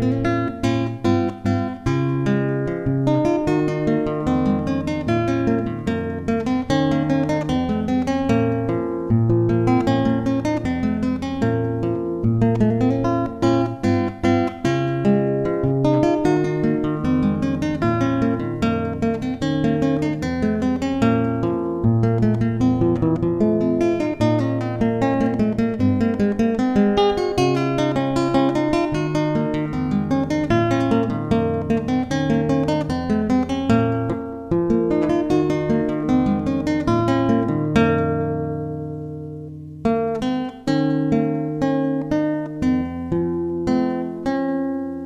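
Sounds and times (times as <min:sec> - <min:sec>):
acoustic guitar music: 0:00.0 - 0:45.0.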